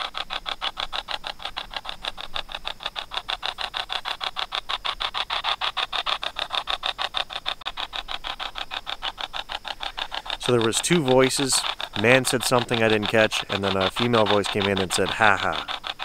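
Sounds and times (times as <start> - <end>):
choppy radio static through phone: 10.4 - 15.7.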